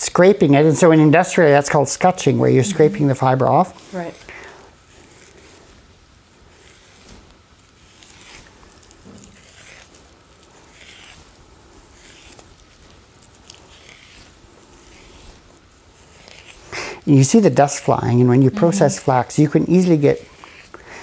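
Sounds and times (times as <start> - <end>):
fingernail scratching plant stems: 7.7 - 16.7.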